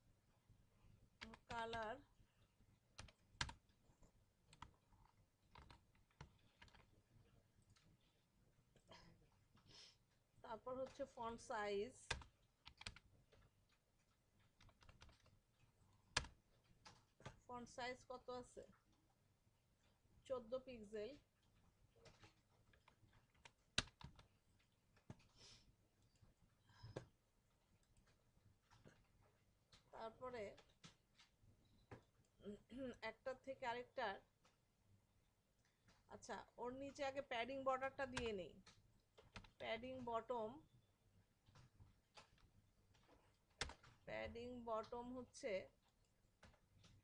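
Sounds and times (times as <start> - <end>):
faint keyboard typing: 0.8 - 47.0.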